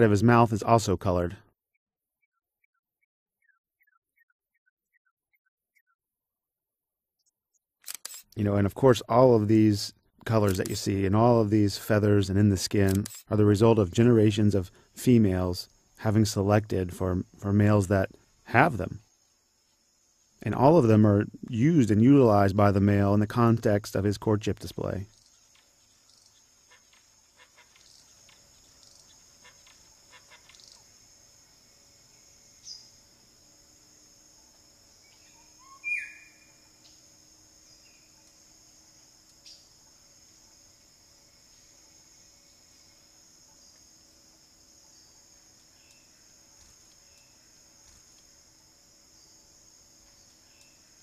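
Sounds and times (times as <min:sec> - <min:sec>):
insect drone: 0:00.0 - 0:01.3, 0:07.9 - 0:51.0
bird chirps and clicks: 0:02.2 - 0:06.0, 0:10.2 - 0:10.8, 0:12.8 - 0:13.3, 0:25.1 - 0:30.9, 0:38.0 - 0:38.4, 0:45.6 - 0:48.3, 0:50.0 - 0:50.8
faint short clicks and chirps: 0:07.8 - 0:08.4, 0:45.8 - 0:47.3, 0:50.5 - 0:50.8
sharp downward bird call: 0:35.3 - 0:36.5.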